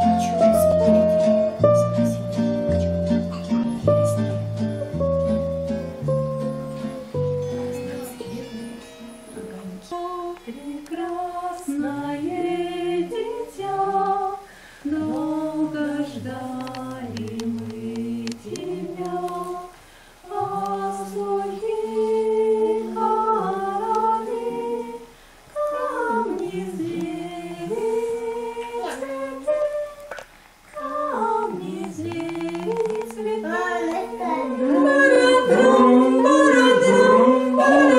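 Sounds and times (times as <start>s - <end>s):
person singing unaccompanied: 6.1s - 37.9s
breaths between phrases: 14.4s - 14.9s, 19.8s - 20.2s.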